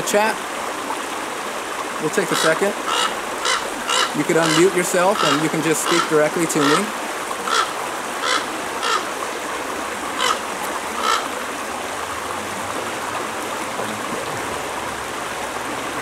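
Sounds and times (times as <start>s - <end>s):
creek running over rocks: 0.0s - 16.0s
short bird calls: 2.4s - 6.8s.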